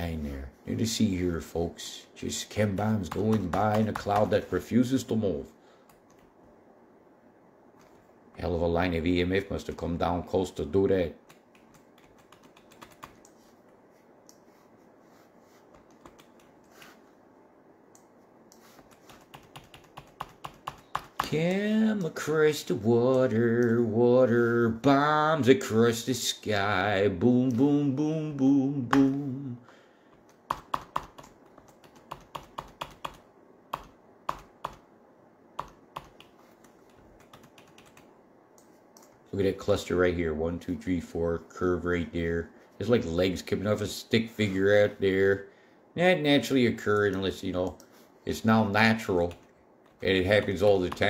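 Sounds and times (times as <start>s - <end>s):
computer keys clicking: 11.2s - 13.4s, 15.7s - 16.7s, 17.9s - 21.4s, 30.3s - 34.8s, 35.6s - 39.2s
computer mouse clicks: 35.6s - 39.2s.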